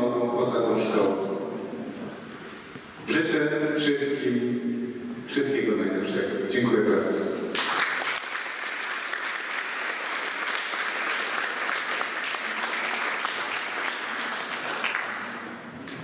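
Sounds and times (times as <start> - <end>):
audience applauding: 7.5 - 16.0.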